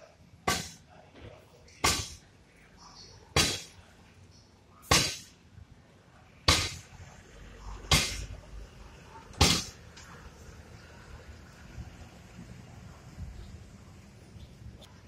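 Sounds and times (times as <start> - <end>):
loud sharp cracks: 0.4 - 0.9, 1.8 - 2.2, 4.9 - 5.4, 6.5 - 6.9, 7.9 - 8.3, 9.3 - 9.8.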